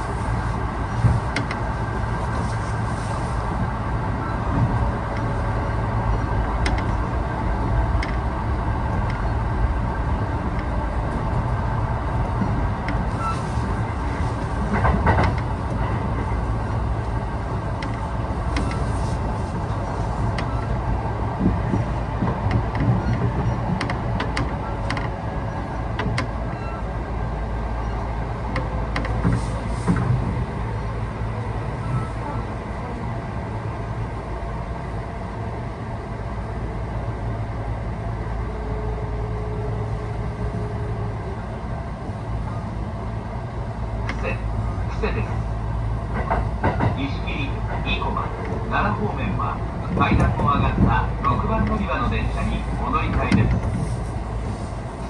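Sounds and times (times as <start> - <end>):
train wheels and motors rumbling: 0.0 - 55.0
wheels clicking over rail joints: 12.3 - 19.1, 46.1 - 48.6.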